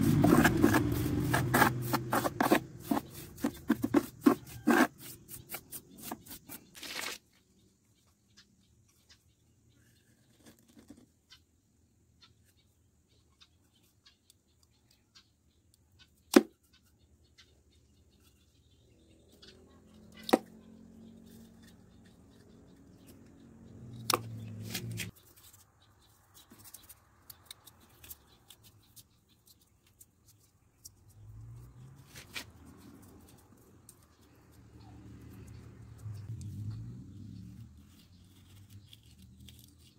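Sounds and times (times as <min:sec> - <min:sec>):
small handling sounds: 0:00.0 - 0:07.5, 0:23.9 - 0:31.2, 0:37.5 - 0:39.9.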